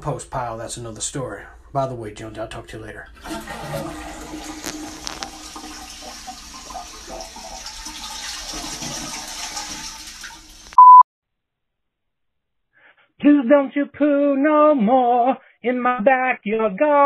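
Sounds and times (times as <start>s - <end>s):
toilet flushing: 3.1s - 10.8s
short loud beep: 10.8s - 11.0s.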